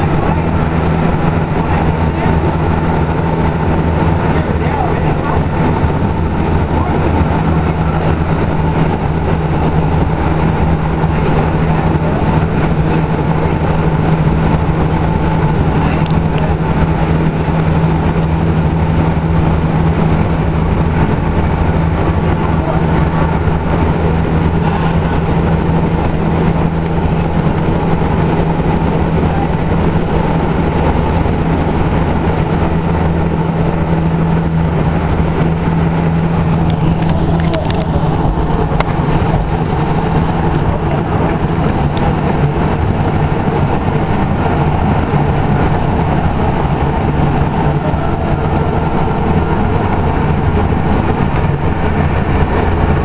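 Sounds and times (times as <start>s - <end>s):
light rail car running noise: 0.0s - 53.0s.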